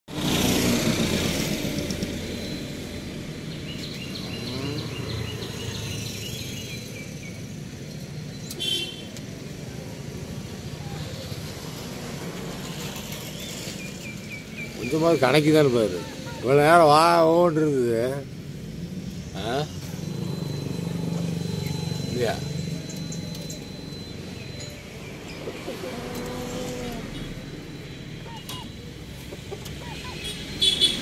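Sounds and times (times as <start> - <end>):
low rumble of distant traffic: 0.1 - 31.0
faint high chirps: 19.4 - 30.4.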